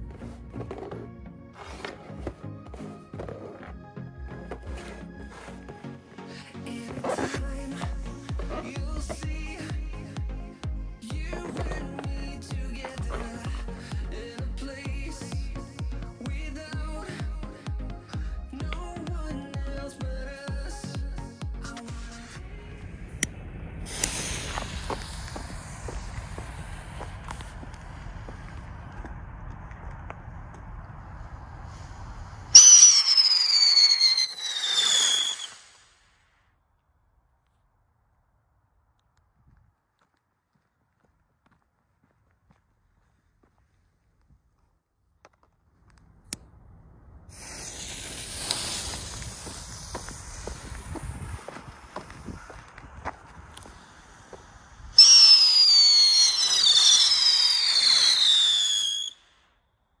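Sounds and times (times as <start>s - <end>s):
low rumble: 22.0s - 32.6s, 45.6s - 55.0s
firework whistle and hissing burn: 23.8s - 28.7s, 31.1s - 36.3s, 47.3s - 59.5s.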